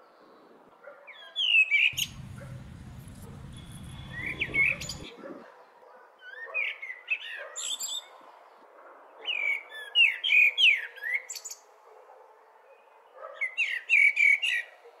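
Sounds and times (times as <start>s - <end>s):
steady background hiss: 2.0s - 5.1s
birds chirping: 2.0s - 5.2s.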